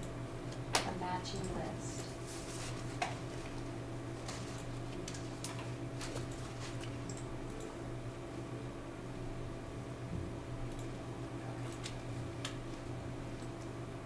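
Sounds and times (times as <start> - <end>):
projector cooling fan hum: 0.0 - 14.0
computer mouse clicks: 7.0 - 7.7.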